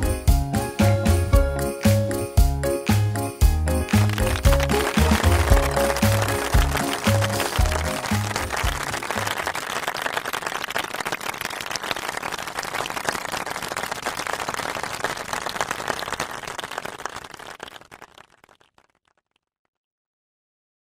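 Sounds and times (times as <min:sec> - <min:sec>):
crowd applause: 0:03.8 - 0:19.0.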